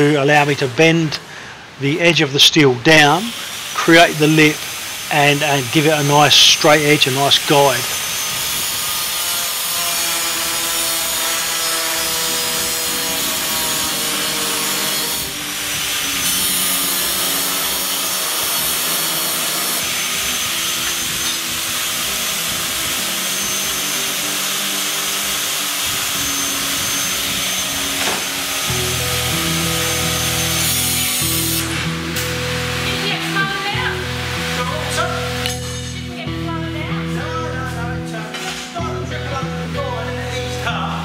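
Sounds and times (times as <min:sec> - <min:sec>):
angle grinder cutting steel: 0:03.0 - 0:40.6
background music: 0:10.7 - 0:41.0.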